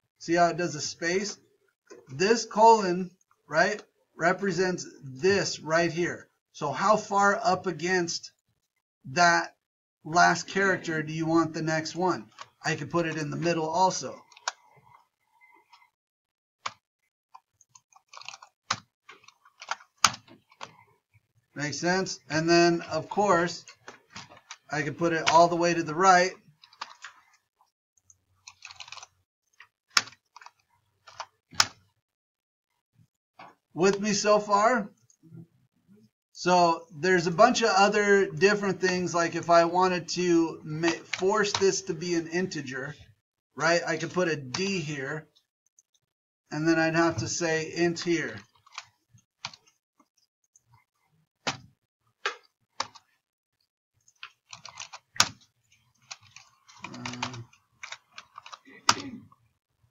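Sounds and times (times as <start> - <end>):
computer keyboard typing: 17.4 - 20.8, 26.5 - 27.4, 28.4 - 31.8, 48.3 - 49.8, 52.3 - 53.2, 54.0 - 59.1.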